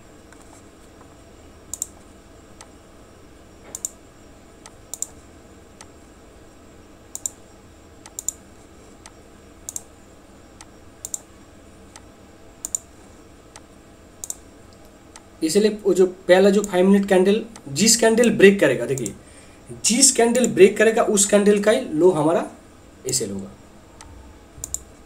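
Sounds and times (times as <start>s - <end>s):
faint background hum: 0.0s - 25.0s
computer mouse clicking: 1.7s - 2.0s, 3.7s - 4.0s, 4.6s - 5.2s, 7.1s - 7.4s, 8.0s - 8.4s, 9.0s - 9.9s, 10.6s - 11.3s, 11.9s - 12.9s, 13.5s - 15.3s, 24.0s - 25.0s.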